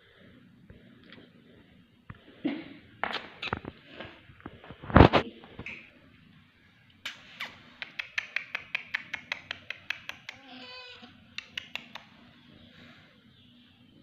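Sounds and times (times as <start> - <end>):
rapid sharp clicks: 7.1 - 10.4, 11.4 - 12.2.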